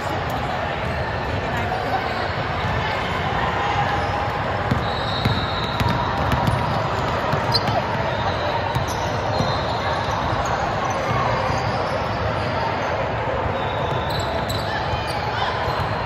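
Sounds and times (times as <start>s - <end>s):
ball bouncing on hard court: 4.6s - 8.0s.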